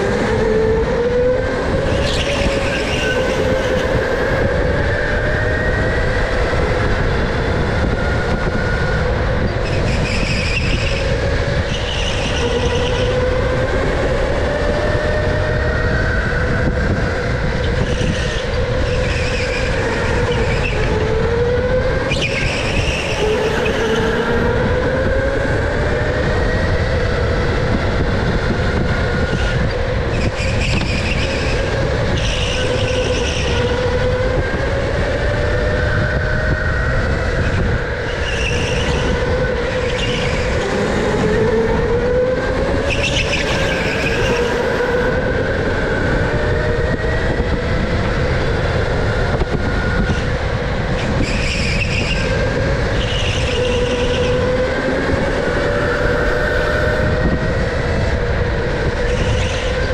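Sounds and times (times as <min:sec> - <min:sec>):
road and wind rumble: 0:00.0 - 0:59.9
tyre squeal: 0:01.9 - 0:03.9, 0:22.1 - 0:24.3, 0:38.1 - 0:40.7, 0:51.0 - 0:52.4.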